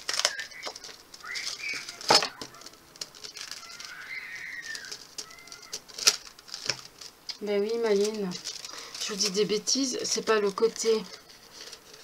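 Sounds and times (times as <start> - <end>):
faint high chirps: 0.2 - 2.8, 3.4 - 5.8.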